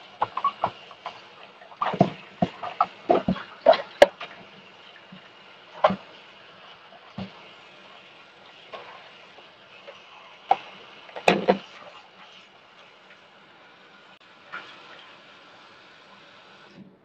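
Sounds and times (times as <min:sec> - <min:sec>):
tap water running into steel sink: 0:00.0 - 0:13.2
plastic colander and bowl clattering: 0:11.2 - 0:11.7.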